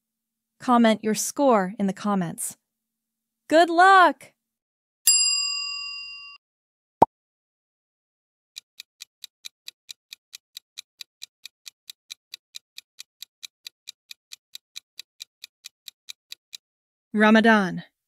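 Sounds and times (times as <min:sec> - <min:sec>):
clock ticking: 0:08.6 - 0:16.6.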